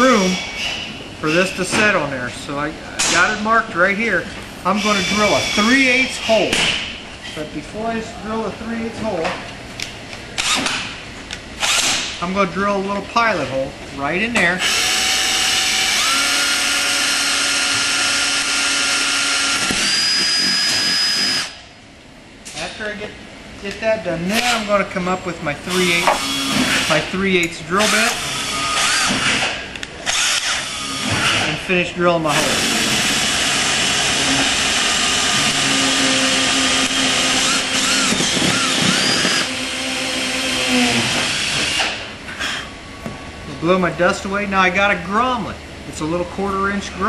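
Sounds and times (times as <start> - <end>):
drill bit squeaking in metal: 4.7 - 6.4, 35.4 - 41.6
cordless drill whining: 14.6 - 21.6, 26.0 - 26.9, 27.8 - 29.4, 30.1 - 31.5, 32.4 - 42.0.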